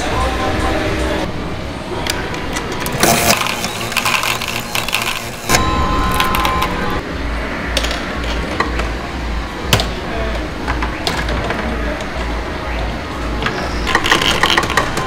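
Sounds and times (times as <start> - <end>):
steady beep-like tone: 4.8 - 9.7
low pulse: 5.5 - 10.3.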